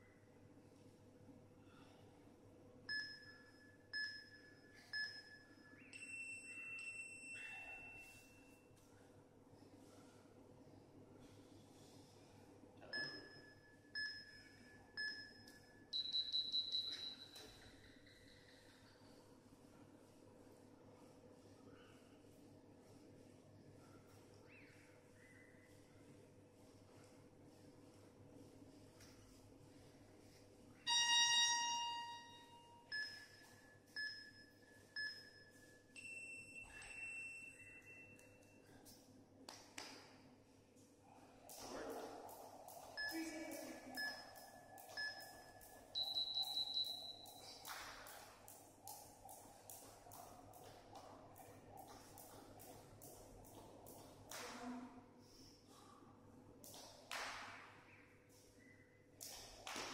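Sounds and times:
short timer beeps: 13.0 - 17.6, 30.9 - 38.4, 43.0 - 47.5
higher timer tone: 42.9 - 47.4.

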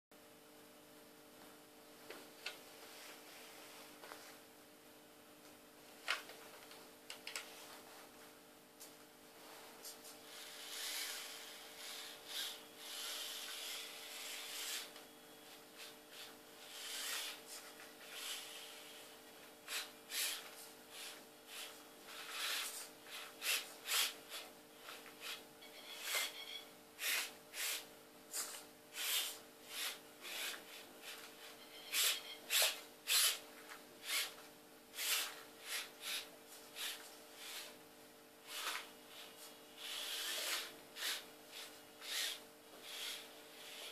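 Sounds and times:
small electric motor whirring: 10.3 - 15.0, 15.8 - 26.4, 27.0 - 27.8, 28.4 - 33.4, 34.0 - 34.4, 35.0 - 37.8, 38.4 - 43.9.

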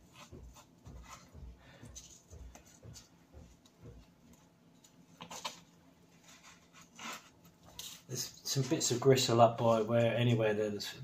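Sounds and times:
knife scraping on chopping board: 6.2 - 8.0.

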